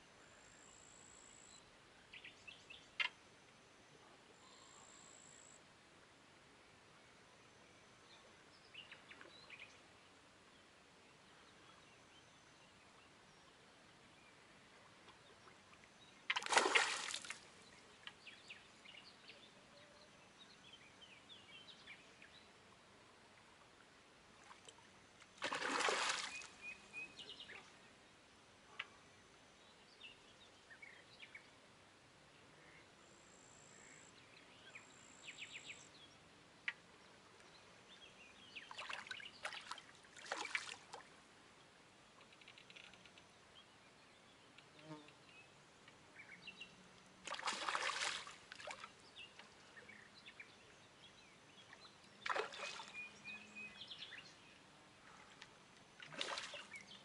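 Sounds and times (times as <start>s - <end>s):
faint outdoor background: 0.0s - 57.0s
splashes on river water: 15.0s - 17.7s, 24.4s - 27.7s, 38.7s - 41.2s, 47.2s - 49.7s, 51.6s - 53.2s, 55.2s - 57.0s.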